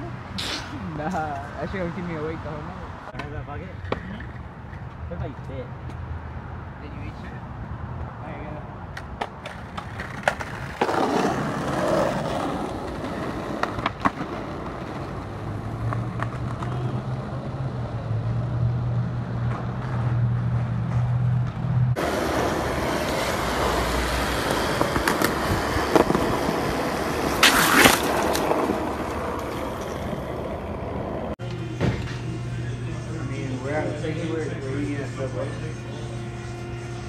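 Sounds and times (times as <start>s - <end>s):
skateboard wheels rolling on pavement: 7.8s - 31.7s
skateboards clacking: 8.9s - 17.9s, 19.4s - 31.7s.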